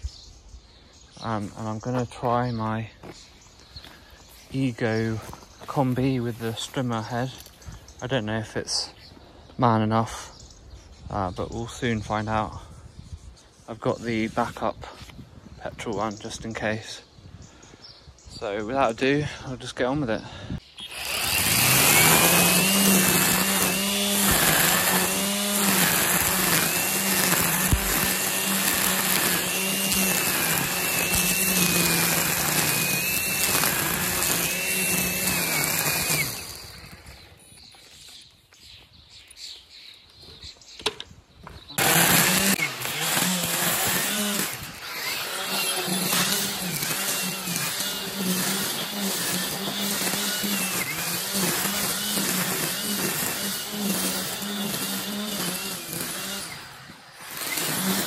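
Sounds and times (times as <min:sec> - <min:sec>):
string trimmer cutting grass: 0:20.7 - 0:38.2, 0:41.7 - 0:58.0.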